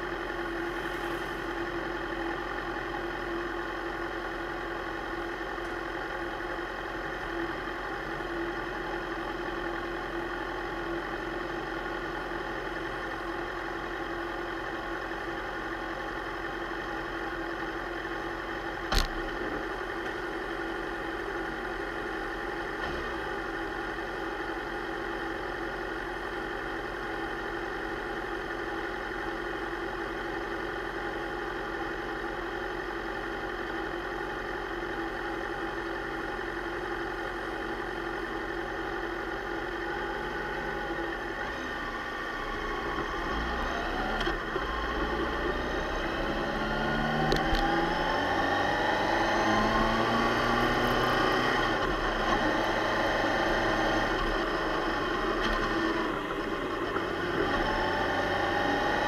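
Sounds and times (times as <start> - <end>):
motorcycle engine idling and revving: 0.0 - 59.0.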